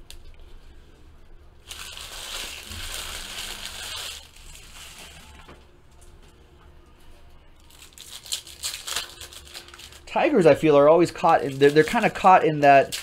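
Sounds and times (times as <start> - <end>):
foil wrappers crinkling and tearing: 1.6 - 5.5, 7.6 - 13.0
rustling of wrappers and cards: 1.6 - 5.5, 7.6 - 13.0.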